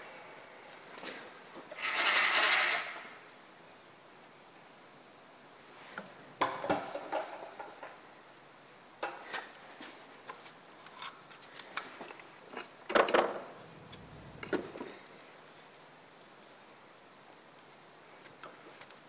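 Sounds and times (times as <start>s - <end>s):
metallic clinking and scraping: 1.8s - 3.2s.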